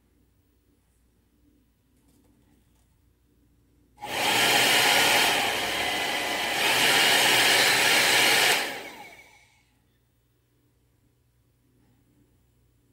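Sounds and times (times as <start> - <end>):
hair dryer blowing: 4.0 - 9.5
fan spinning down whine: 4.0 - 9.7.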